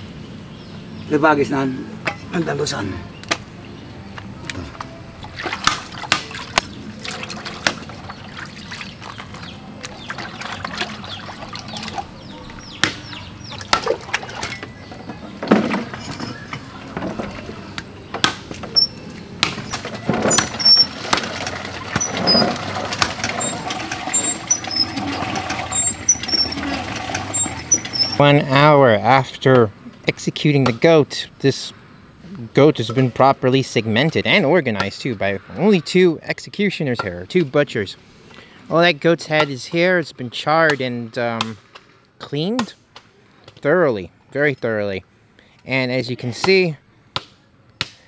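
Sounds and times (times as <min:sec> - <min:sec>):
liquid splashing: 0:05.2 - 0:12.2, 0:19.8 - 0:28.2
short high chirps: 0:27.2 - 0:28.2.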